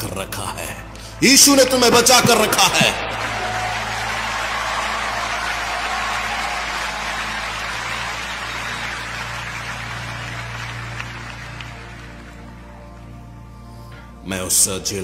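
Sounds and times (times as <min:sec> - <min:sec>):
audience applauding: 0:01.8 - 0:12.9.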